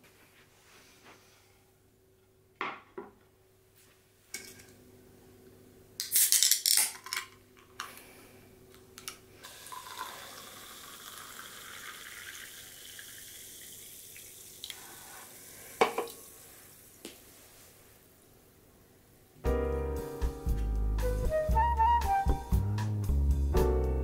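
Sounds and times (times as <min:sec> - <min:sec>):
can cracked open with hiss: 0:06.0 - 0:06.9
fizzy drink pouring into glass: 0:09.4 - 0:16.4.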